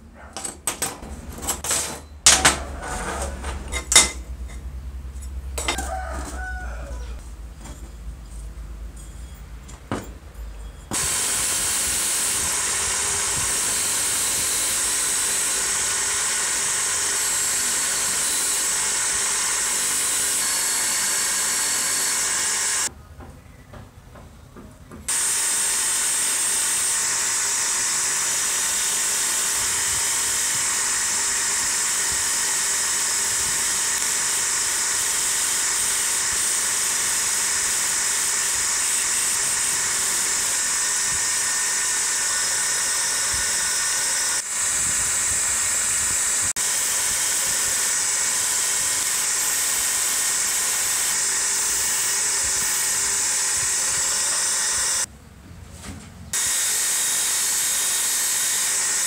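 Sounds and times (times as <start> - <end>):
power tool running with hiss: 10.9 - 22.9, 25.1 - 55.1, 56.3 - 59.0.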